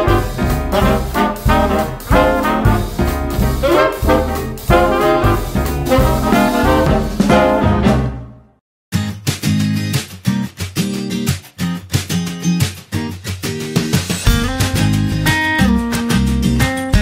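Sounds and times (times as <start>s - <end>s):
swing music led by brass: 0.0s - 8.5s.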